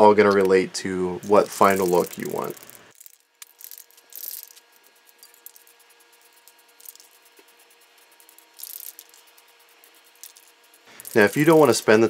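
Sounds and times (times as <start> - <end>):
rubbing and handling of can: 1.2 - 2.8
spray paint can hissing: 1.2 - 12.0.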